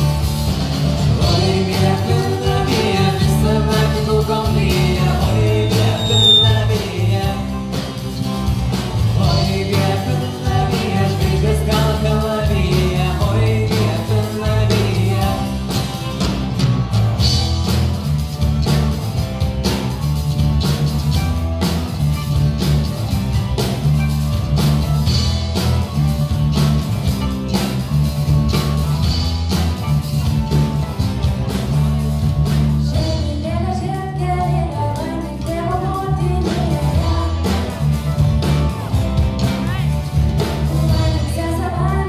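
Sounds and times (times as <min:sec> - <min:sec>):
strummed acoustic guitar: 0:00.0 - 0:32.9
electric bass line: 0:00.0 - 0:42.0
young woman singing: 0:32.9 - 0:37.7, 0:40.7 - 0:42.0.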